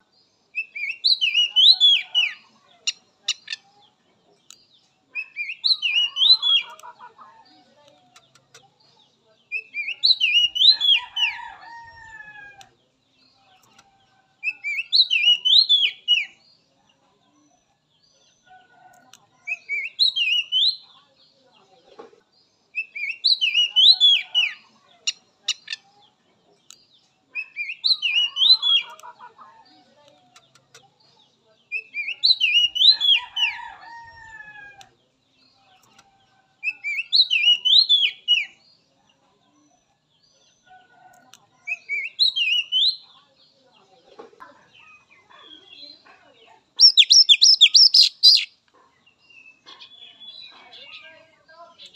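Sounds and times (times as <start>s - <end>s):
bird singing whistled phrase: 46.8s - 48.5s
lower chattering bird call: 46.8s - 48.6s.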